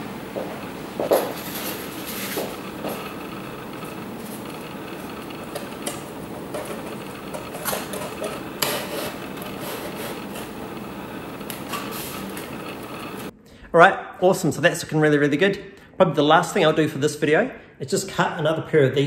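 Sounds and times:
low hum: 0.0 - 13.6
foam board parts tapping and scraping: 5.5 - 10.5.

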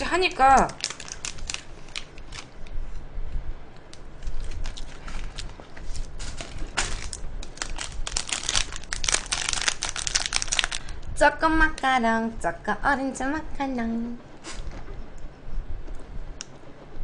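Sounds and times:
plastic wrapper crinkling: 0.4 - 2.8, 3.9 - 11.0.

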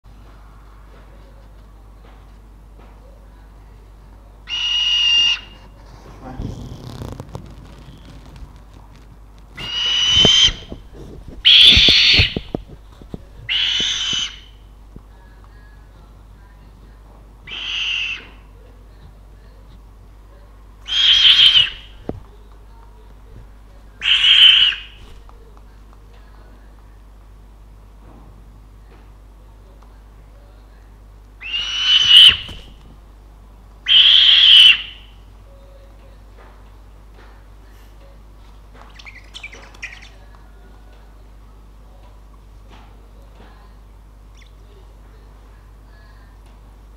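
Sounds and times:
owl hissing screech calls: 4.5 - 5.6, 9.6 - 10.8, 11.4 - 12.5, 13.5 - 14.6, 17.5 - 18.4, 20.8 - 22.0, 24.0 - 25.0, 31.4 - 32.7, 33.9 - 35.1.

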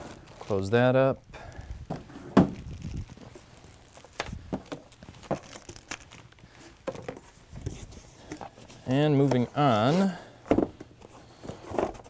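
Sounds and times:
plastic bag crinkling: 0.0 - 1.2, 2.0 - 7.2.

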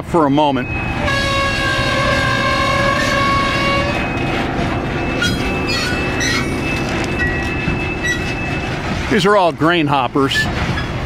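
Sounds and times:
train cars rumbling over rails: 0.0 - 11.0
high-pitched wheel squeal: 0.7 - 8.8.

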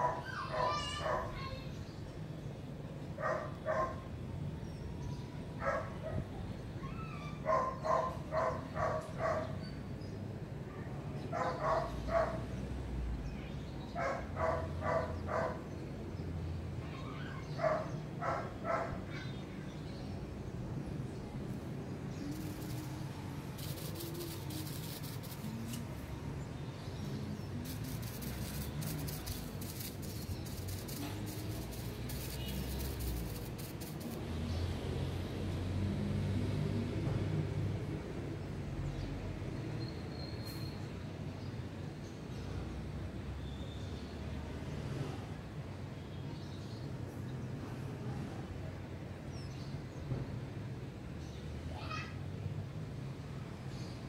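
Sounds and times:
dog barking: 0.0 - 1.4, 3.2 - 4.0, 5.6 - 6.2, 7.4 - 9.6, 11.3 - 12.4, 14.0 - 15.6, 17.6 - 19.0.

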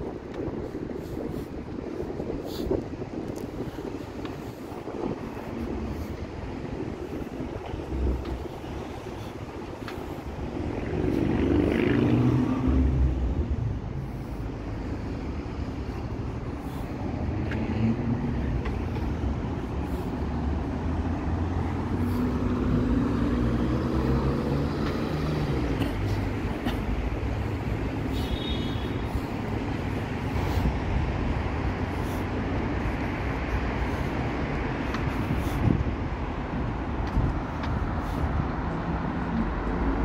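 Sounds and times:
road traffic: 0.0 - 40.0
vehicle engine accelerating: 10.6 - 13.7, 20.4 - 27.6.

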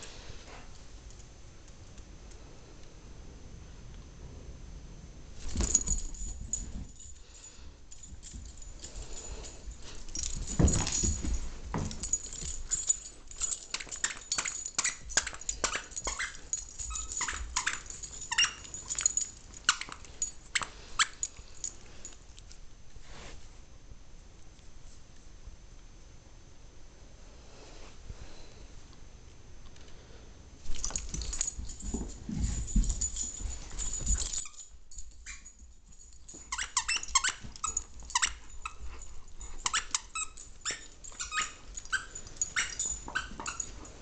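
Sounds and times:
dogs scuffling: 5.4 - 21.8, 30.6 - 44.0.

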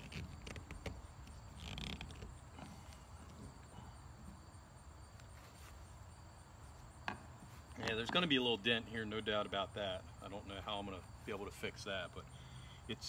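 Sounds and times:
metal tool scraping plastic: 0.0 - 3.5.

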